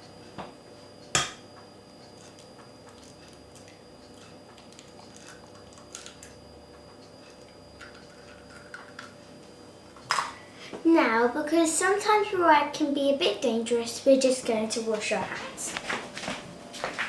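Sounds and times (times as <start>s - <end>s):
eggshell crackling: 2.1s - 6.4s.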